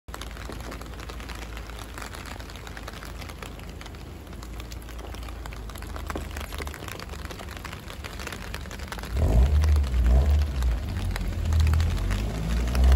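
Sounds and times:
rain pattering: 0:00.0 - 0:12.9
low rumble: 0:08.5 - 0:12.9.

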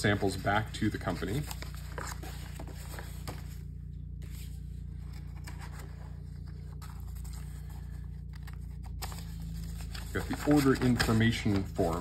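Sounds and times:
steady low hum: 0:00.0 - 0:12.0
paper scraping and tapping: 0:08.3 - 0:12.0.

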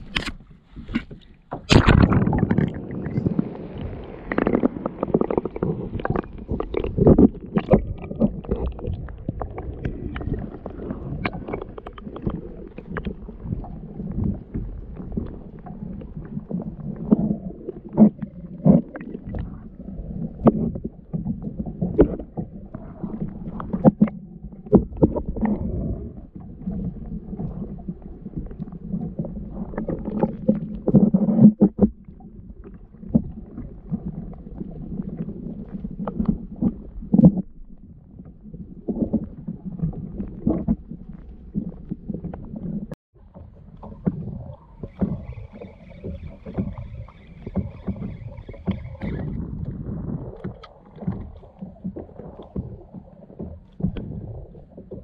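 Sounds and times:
water slapping against kayak hull: 0:00.0 - 0:19.6, 0:38.9 - 0:55.0.

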